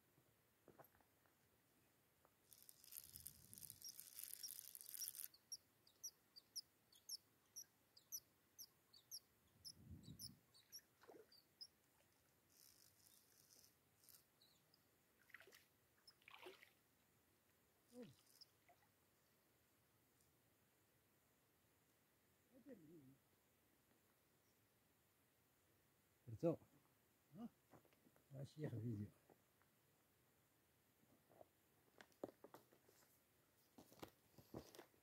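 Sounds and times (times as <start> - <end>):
fishing reel whirring: 2.5 - 5.3, 12.5 - 14.2.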